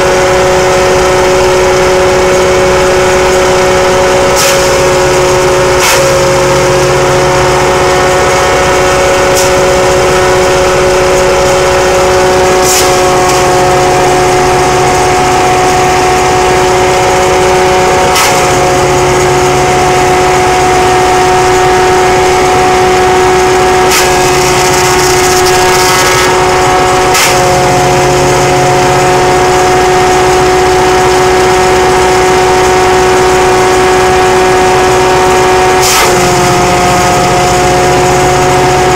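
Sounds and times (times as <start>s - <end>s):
shredder high whine: 0.0s - 38.9s
tractor engine drone: 0.0s - 38.9s
fronds being chopped: 4.4s - 4.8s, 5.8s - 6.3s, 12.6s - 13.5s, 18.1s - 18.6s, 23.9s - 27.8s, 35.8s - 36.4s.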